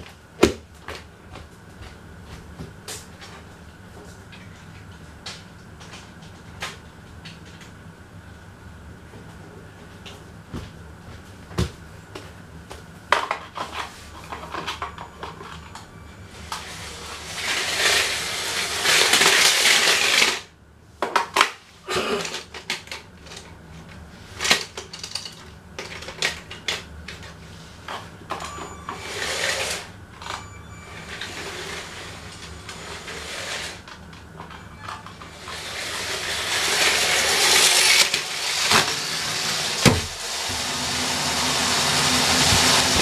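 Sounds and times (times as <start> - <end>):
clicks and clatter of small objects: 24.4 - 28.0.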